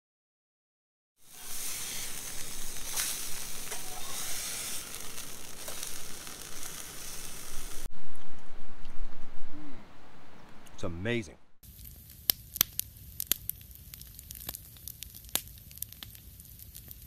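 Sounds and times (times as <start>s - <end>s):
sizzling hiss with crackles: 1.2s - 9.0s, 11.6s - 17.0s
low rumbling noise: 1.2s - 11.6s.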